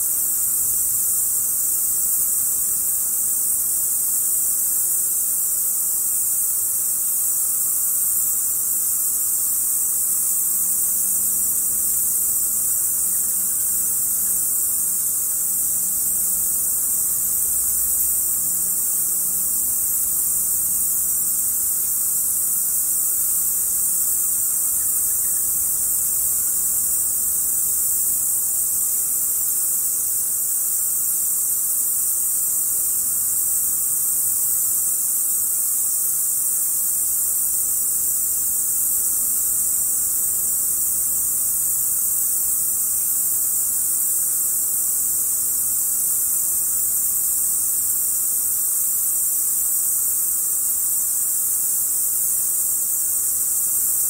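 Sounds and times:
bats calling: 23.2 - 29.0.

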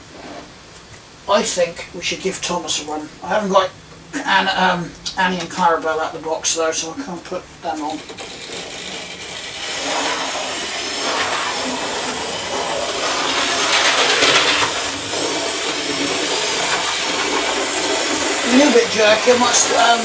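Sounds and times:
model train wheels on rails: 7.7 - 20.0
small electric motor whirring: 7.7 - 20.0.

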